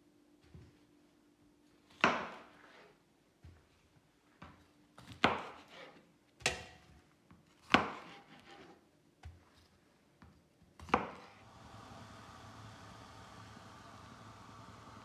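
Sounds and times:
knife chopping on board: 5.0 - 6.8, 7.6 - 8.7, 10.8 - 11.4.

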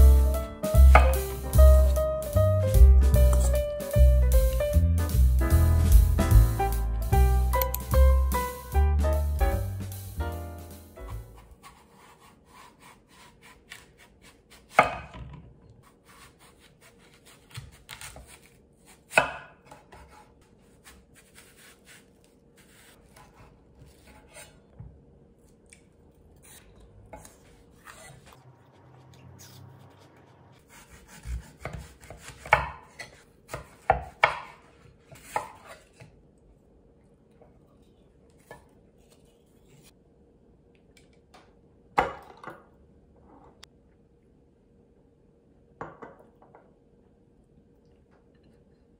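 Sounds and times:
knife cutting apple: 3.0 - 3.7, 11.0 - 15.2, 15.8 - 24.7, 25.4 - 36.2.

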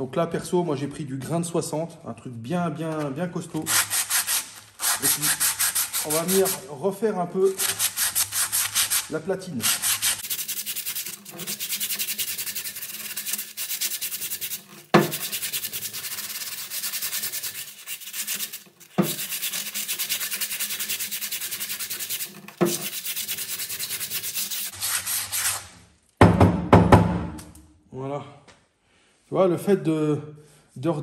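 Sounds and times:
sandpaper rubbing on metal: 3.6 - 6.7, 7.5 - 25.8
knock: 15.0 - 15.2, 26.2 - 27.4.

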